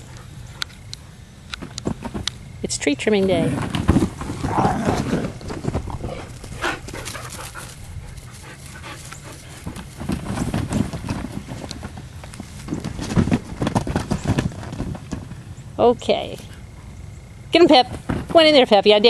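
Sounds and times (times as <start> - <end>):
paw thuds and scuffling on grass: 3.3 - 15.4.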